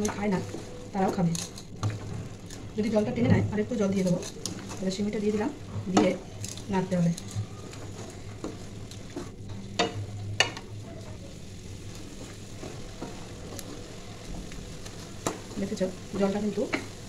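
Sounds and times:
food sizzling: 0.0 - 17.0
wooden spatula scraping a pan: 0.0 - 17.0.

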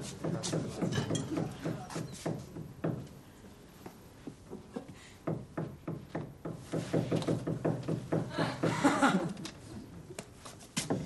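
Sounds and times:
hammer driving nails: 5.2 - 8.3.

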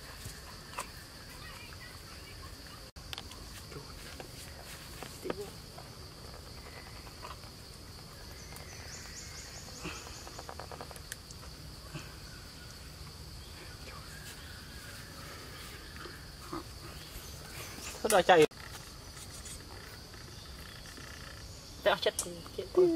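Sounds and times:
high-pitched insect drone: 0.0 - 22.9
faint clicks and rustles: 9.8 - 11.6.

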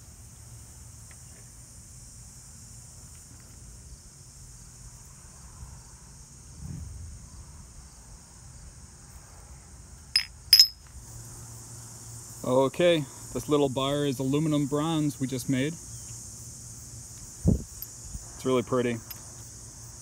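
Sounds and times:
high-pitched insect chirring: 15.7 - 20.0.

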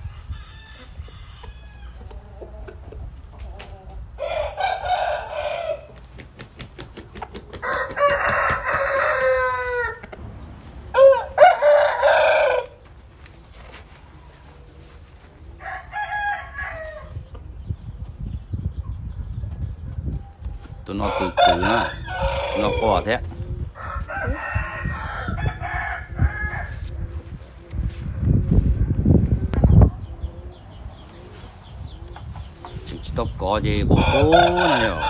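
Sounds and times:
roosters crowing: 0.0 - 2.8, 3.7 - 6.2, 7.4 - 13.2, 15.4 - 17.3, 19.6 - 27.4, 32.4 - 35.0.

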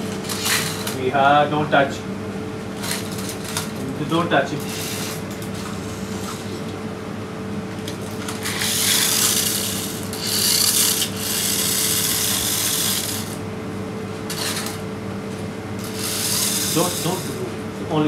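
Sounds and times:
steady low hum: 0.0 - 18.0
toy truck motor whirring: 0.2 - 0.9, 4.6 - 6.6, 8.3 - 13.4, 14.3 - 14.8, 15.8 - 17.4
wheels scrubbing on tiled floor: 8.3 - 13.4, 15.8 - 17.3.

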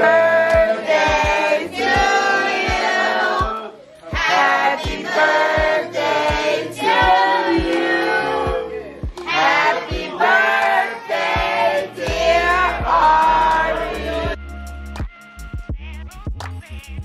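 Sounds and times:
steady drum beat: 0.0 - 14.4.

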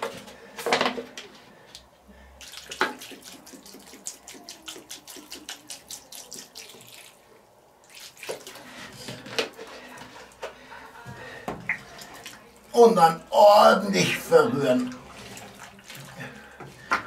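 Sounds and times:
water pouring and splashing into pot: 2.4 - 10.5, 14.1 - 17.0.

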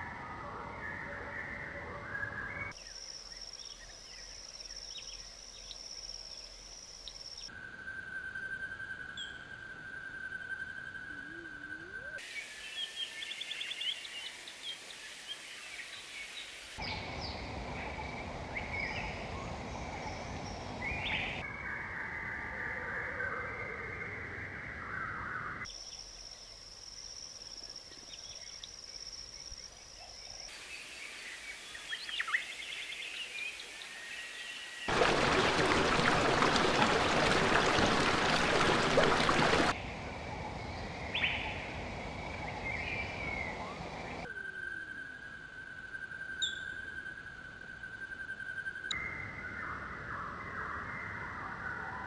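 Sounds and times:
bird calls and chirps: 27.6 - 34.9, 40.4 - 52.0.

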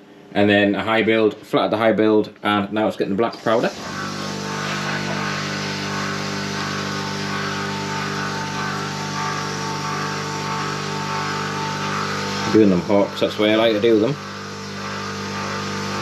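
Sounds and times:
machine hum: 0.0 - 16.0
hiss of spraying air: 3.3 - 16.0.

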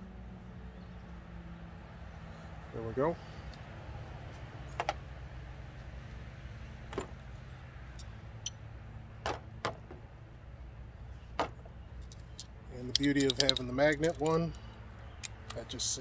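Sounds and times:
metallic clicks of hand tools: 12.0 - 15.7.

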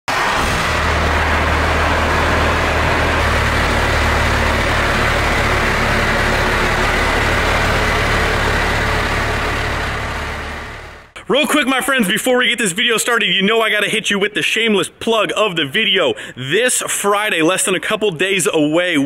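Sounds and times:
diesel engine idling: 0.1 - 11.2.

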